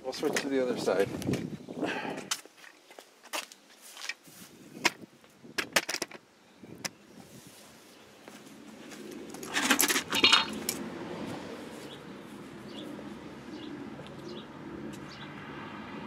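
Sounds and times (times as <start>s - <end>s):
metal hand tools clanking: 9.4s - 10.8s.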